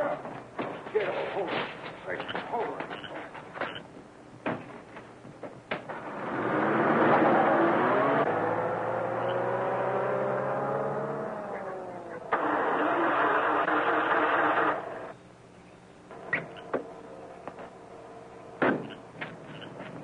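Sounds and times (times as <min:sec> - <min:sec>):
engine and road noise: 0:04.6 - 0:20.0
vehicle engine speeding up: 0:06.0 - 0:15.1.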